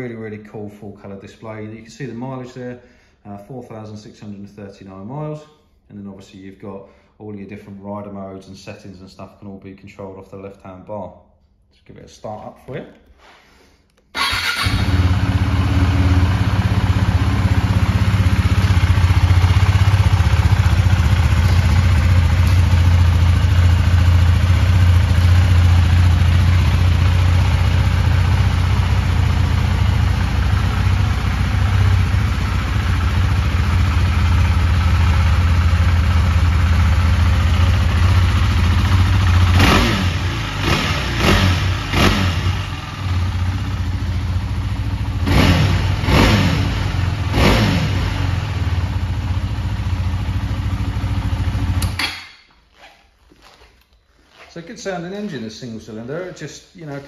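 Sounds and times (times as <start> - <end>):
motorcycle engine idling: 14.2 - 52.1
throttle blips revving engine: 39.2 - 43.1, 45.2 - 48.6.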